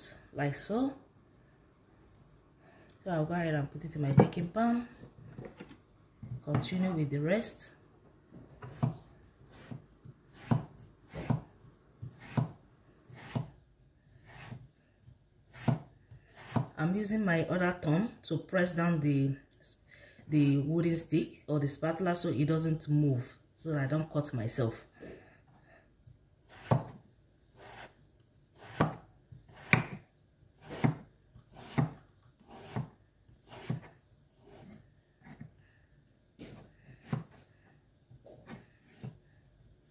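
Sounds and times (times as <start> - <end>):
knife chopping through potato: 8.6 - 13.6, 14.2 - 16.8, 26.4 - 27.0, 27.6 - 35.4, 36.4 - 37.4, 38.3 - 39.2.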